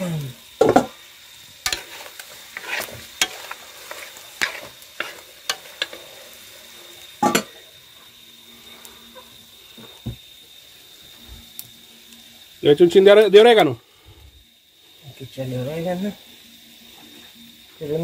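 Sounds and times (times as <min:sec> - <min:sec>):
meat sizzling: 0:00.0 - 0:18.0
metal spoon scraping a pot: 0:01.7 - 0:06.0.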